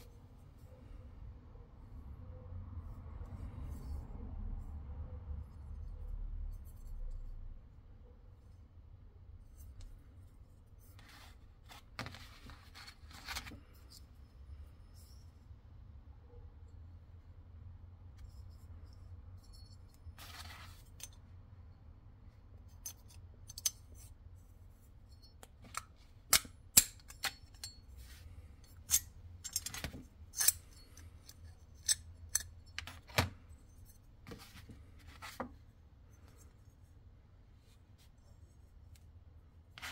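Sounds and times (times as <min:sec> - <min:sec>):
padlock scrape: 0:25.0 - 0:35.4.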